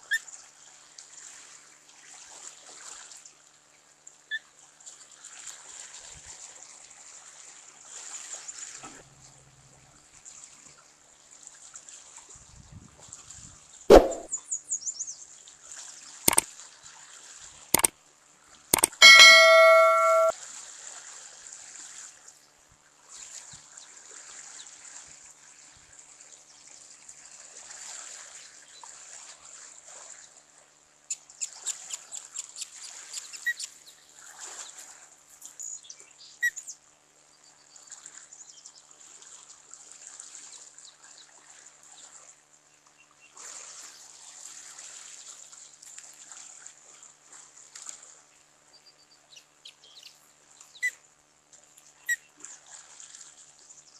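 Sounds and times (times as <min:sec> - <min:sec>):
faint short peeps: 0:13.9 - 0:14.3, 0:18.8 - 0:20.3.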